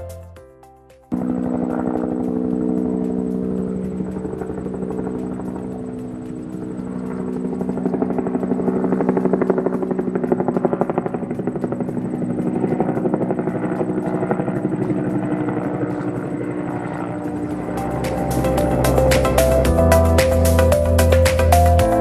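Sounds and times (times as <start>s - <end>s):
toy helicopter rotors whirring: 1.5s - 16.4s.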